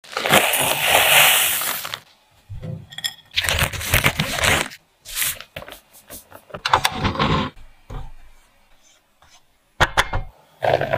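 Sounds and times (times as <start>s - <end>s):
plastic bag crinkling: 0.0s - 2.0s.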